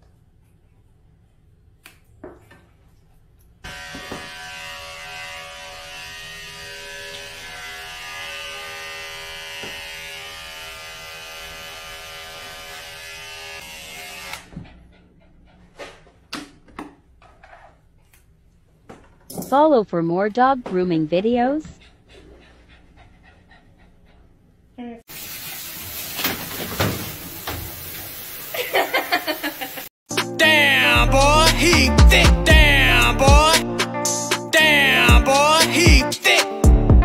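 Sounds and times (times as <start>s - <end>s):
electric clippers running: 3.7s - 14.5s.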